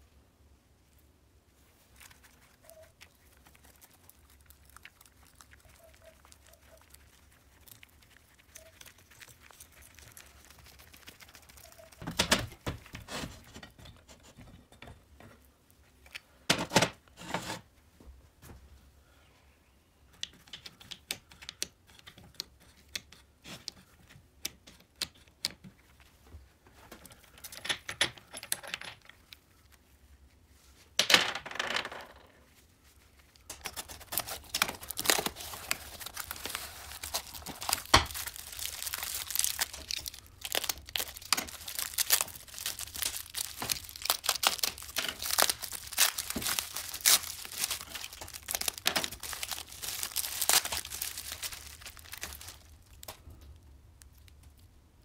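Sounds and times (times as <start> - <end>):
bubble wrap and cardboard crinkling: 0.8 - 13.8, 32.4 - 54.8.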